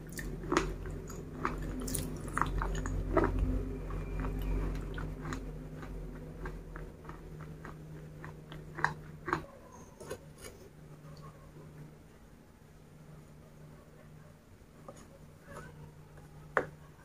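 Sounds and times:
close chewing with wet mouth clicks: 0.0 - 10.5
faint low hum: 0.0 - 17.0.

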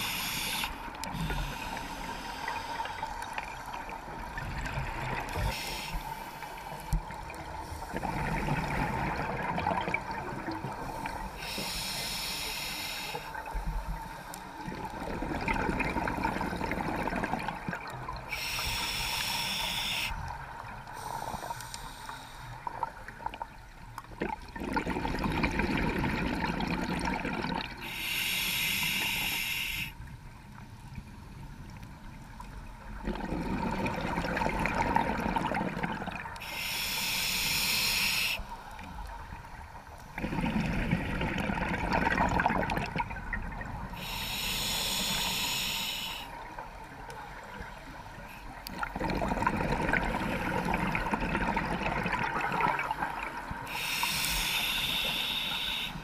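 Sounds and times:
regulator hissing on inhalation: 0.0 - 3.0, 5.4 - 6.7, 11.2 - 13.4, 18.3 - 20.2, 27.8 - 30.0, 36.4 - 38.5, 44.0 - 46.4, 53.7 - 56.0
bubbling of exhaled air: 14.6 - 19.4, 24.1 - 28.2, 33.0 - 38.0, 40.1 - 45.8, 48.6 - 55.8.

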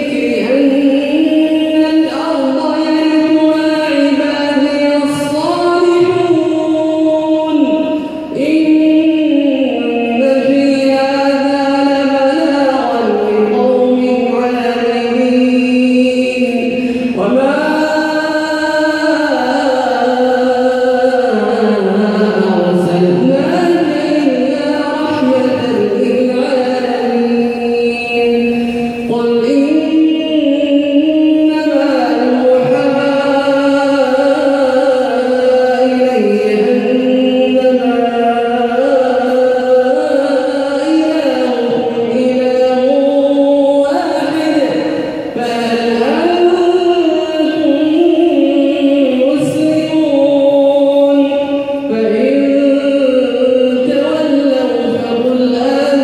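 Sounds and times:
man chanting: 0.0 - 56.0
breath: 7.9 - 8.3, 16.8 - 17.2, 44.9 - 45.4.

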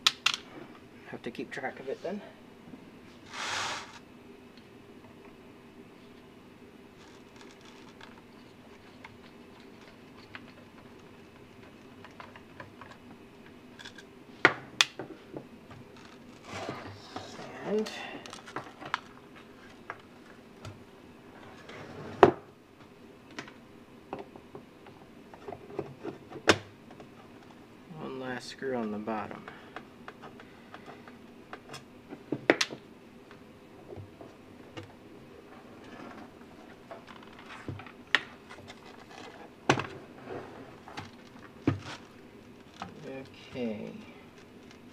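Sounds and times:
plastic case being handled: 7.0 - 13.0.

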